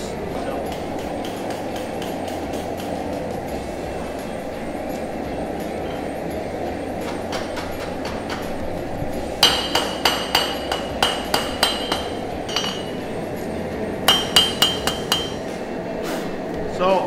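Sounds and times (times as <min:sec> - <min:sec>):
hammer ringing on anvil: 0:09.4 - 0:13.2, 0:14.1 - 0:15.5.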